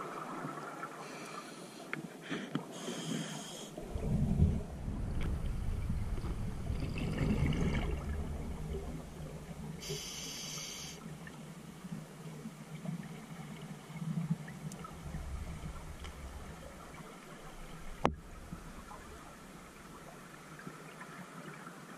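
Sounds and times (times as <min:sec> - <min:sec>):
regulator inhalation hiss: 0:02.7 - 0:03.8, 0:09.8 - 0:11.0
exhaled bubbles gurgling underwater: 0:03.8 - 0:21.9.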